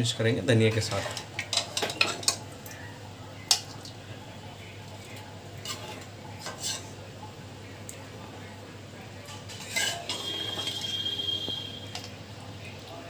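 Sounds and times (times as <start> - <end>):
metal ladle scraping a pot: 5.6 - 7.0, 9.3 - 12.0
high steady squeal: 10.1 - 12.0.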